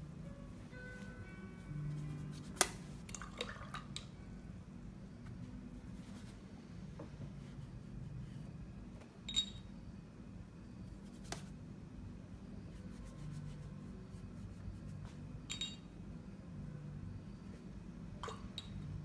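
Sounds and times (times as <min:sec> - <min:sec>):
low steady hum: 0:00.0 - 0:19.0
brush dabbing and scrubbing on paper: 0:05.9 - 0:06.4, 0:12.7 - 0:15.1.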